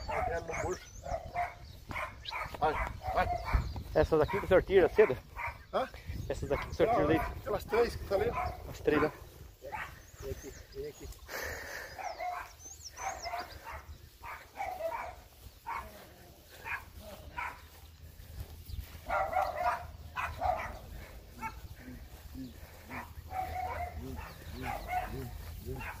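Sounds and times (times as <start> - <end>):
dog barking: 0.0 - 3.7, 4.3 - 5.7, 6.5 - 7.5, 8.1 - 10.0, 12.0 - 17.8, 19.0 - 22.0, 22.7 - 26.0.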